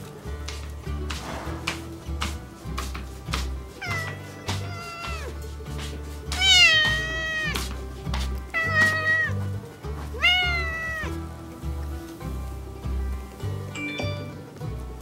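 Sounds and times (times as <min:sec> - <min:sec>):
background music with steady beat: 0:00.0 - 0:15.0
cat meowing: 0:03.8 - 0:05.4, 0:06.3 - 0:07.6, 0:08.5 - 0:09.4, 0:10.2 - 0:11.2.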